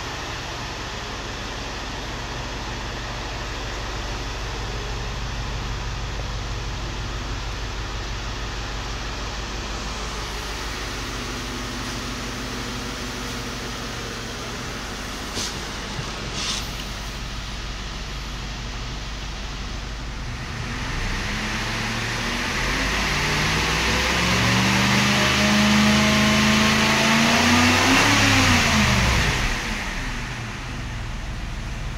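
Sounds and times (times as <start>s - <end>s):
car engine idling: 0.0s - 31.9s.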